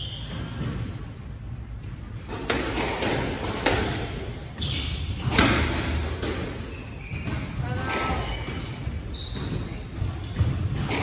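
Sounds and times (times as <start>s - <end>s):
squash ball thuds echoing: 1.6s - 11.0s.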